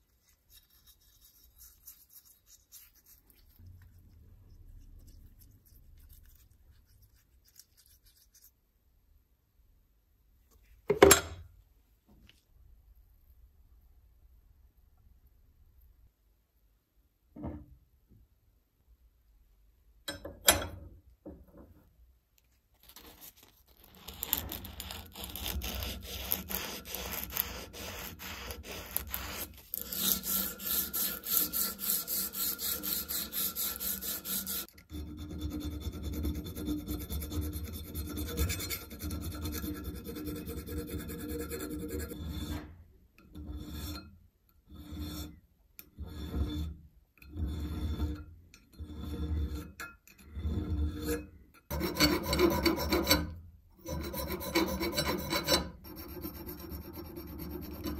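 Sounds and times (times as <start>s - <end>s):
file strokes on metal: 0.0s - 4.1s, 22.9s - 42.8s, 43.4s - 45.4s, 46.0s - 48.2s, 48.8s - 57.9s
sandpaper rubbing on metal: 22.9s - 34.7s.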